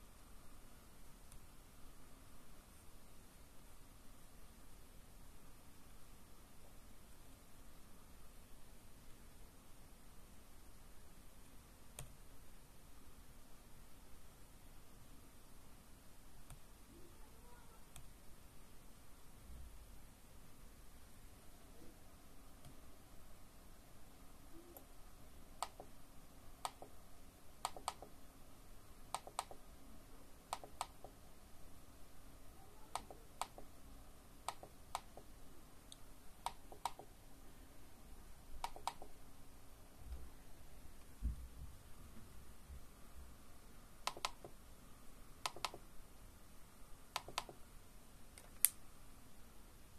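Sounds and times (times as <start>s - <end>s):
computer keys clicking: 25.6s - 25.9s, 26.6s - 27.0s, 27.6s - 28.1s, 29.1s - 29.6s, 30.5s - 31.2s, 32.9s - 33.7s, 34.5s - 35.3s, 36.4s - 37.1s, 38.6s - 39.2s, 44.1s - 44.6s, 45.4s - 45.8s, 47.2s - 47.6s.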